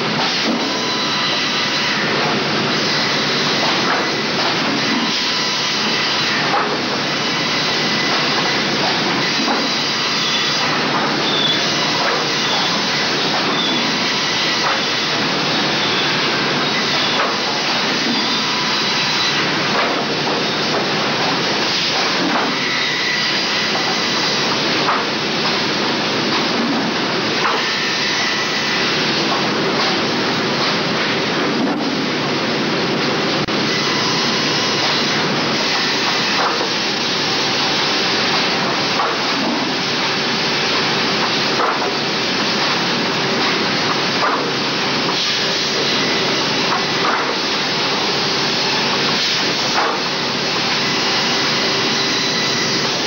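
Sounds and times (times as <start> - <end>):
saw machine mechanical noise: 0.0 - 53.0.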